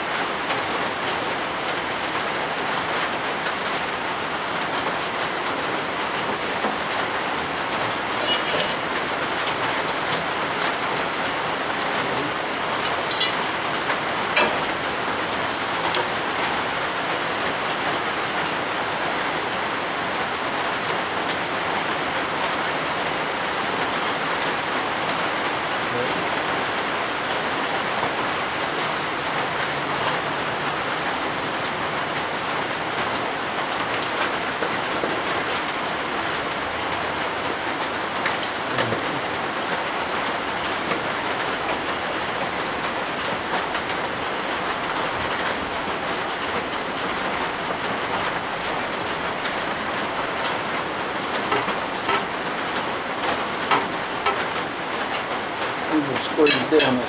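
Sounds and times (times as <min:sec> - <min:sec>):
hand tools clicking on steel: 0:08.1 - 0:08.8, 0:12.8 - 0:13.5
workshop background hiss: 0:27.5 - 0:57.0.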